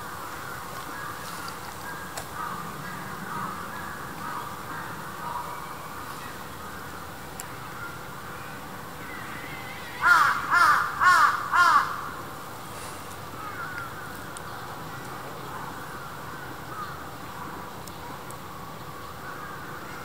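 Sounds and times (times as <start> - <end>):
crow cawing: 10.0 - 12.2, 13.4 - 14.1.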